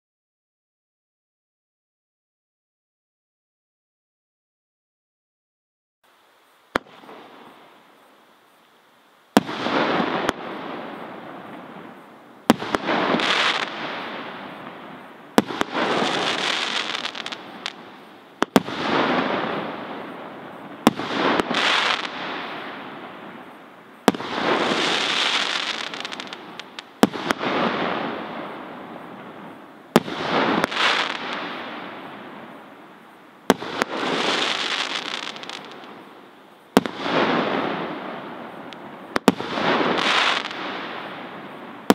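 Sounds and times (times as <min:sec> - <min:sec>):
crackle of firework stars: 0:06.0 - 0:41.9
firework shots firing: 0:06.7 - 0:07.3, 0:15.4 - 0:17.8, 0:36.8 - 0:38.2, 0:39.1 - 0:41.1.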